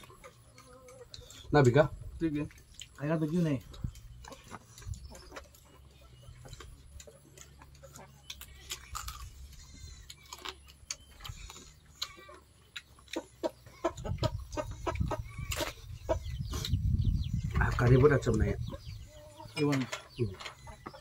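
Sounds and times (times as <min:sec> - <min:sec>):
farm animal calls: 0:00.0 - 0:21.0
chewing and lip-smacking: 0:02.4 - 0:17.0.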